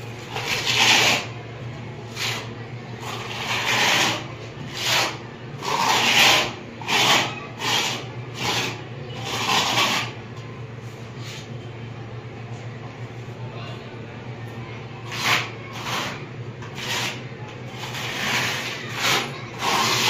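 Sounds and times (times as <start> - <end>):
putty knife scraping a wall: 0.2 - 1.4, 2.1 - 10.2, 15.0 - 20.0.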